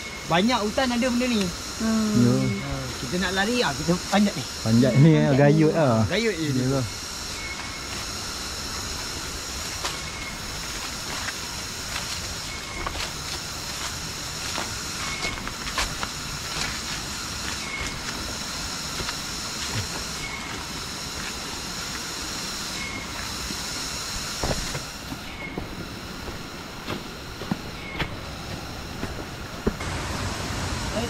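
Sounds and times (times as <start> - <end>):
high steady drone: 0.0 - 31.0
rushing stream and waterfall: 29.3 - 31.0.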